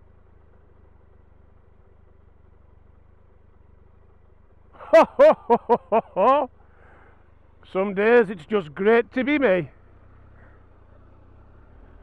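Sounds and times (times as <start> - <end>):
motorcycle engine idling: 0.0 - 12.0
man laughing: 4.8 - 6.5.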